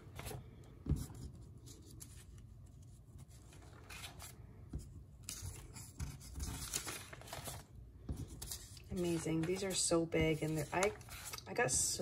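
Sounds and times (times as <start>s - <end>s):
paper sheets rustling: 3.2s - 4.4s, 5.3s - 12.0s.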